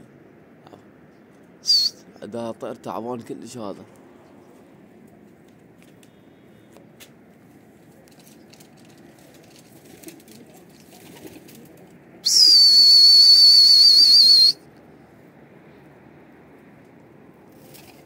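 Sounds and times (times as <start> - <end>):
faint background noise: 0.0 - 18.0
loud high whistle: 1.6 - 2.0, 12.2 - 14.6.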